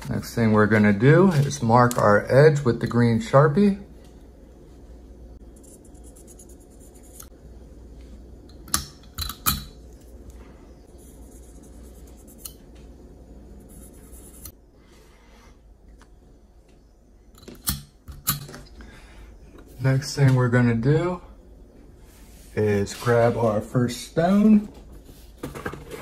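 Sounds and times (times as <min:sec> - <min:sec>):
marker rubbing on knife blade: 0:05.6 - 0:07.3, 0:10.9 - 0:12.6.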